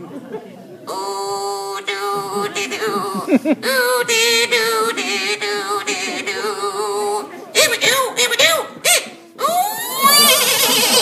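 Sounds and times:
buzzy reedy puppet squawk: 0:07.6 - 0:11.0.

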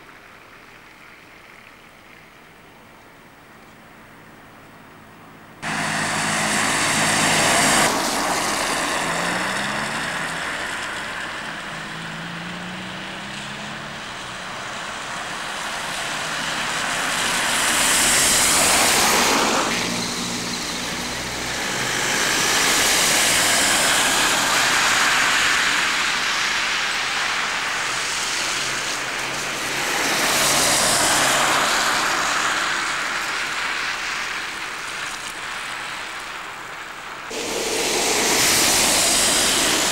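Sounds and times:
low engine hum: 0:00.0 - 0:26.8
tyre hiss on wet road: 0:05.6 - 0:39.9.

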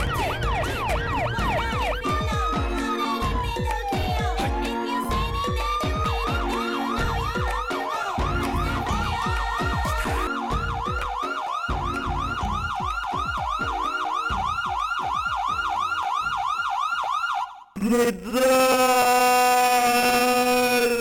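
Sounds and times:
music with thudding beat: 0:00.0 - 0:16.7
police siren yelping: 0:00.0 - 0:17.8.

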